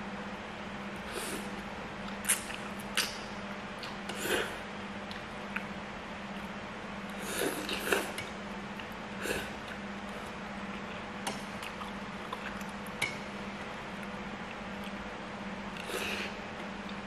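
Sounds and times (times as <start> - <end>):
steady low hum: 0.0 - 17.0
slurping and chewing noodles: 7.1 - 11.0.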